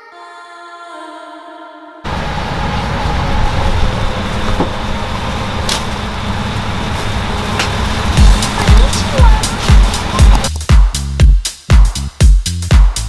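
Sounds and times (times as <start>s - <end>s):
road traffic rumble: 2.1s - 10.5s.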